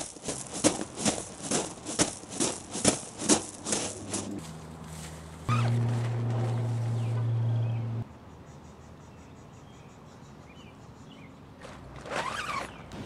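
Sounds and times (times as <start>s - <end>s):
loud low steady hum: 3.7s - 8.0s.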